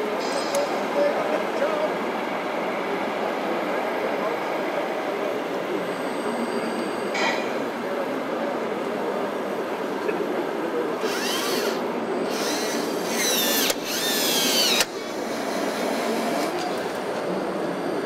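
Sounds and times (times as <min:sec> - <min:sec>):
small electric motor whine: 0:11.0 - 0:17.4.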